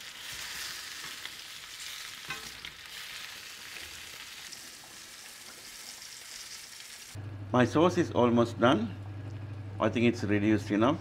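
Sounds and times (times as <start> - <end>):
meat sizzling in hot oil: 0.0 - 7.2.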